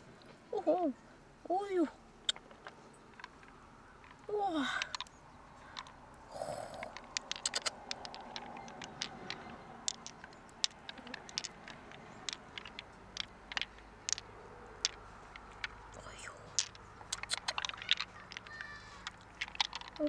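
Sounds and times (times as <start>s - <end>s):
pearls clicking together: 2.2s - 20.0s
taps and scrapes on wet shell: 6.8s - 15.8s, 16.6s - 20.0s.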